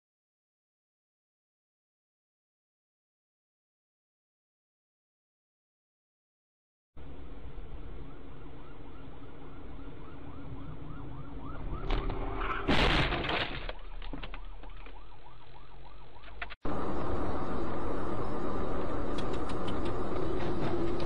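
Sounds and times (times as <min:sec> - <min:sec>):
emergency vehicle siren: 0:07.6 - 0:12.7, 0:13.3 - 0:21.0
loud crash: 0:11.9 - 0:13.8
car engine hum: 0:16.4 - 0:21.0.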